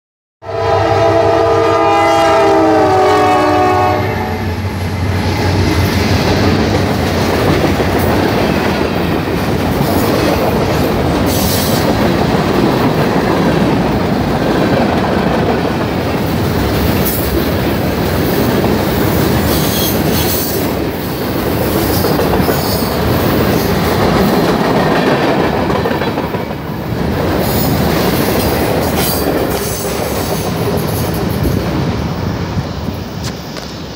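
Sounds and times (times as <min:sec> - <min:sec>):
train air horn chord: 0:00.4 - 0:04.6
train rumbling past: 0:00.4 - 0:33.9.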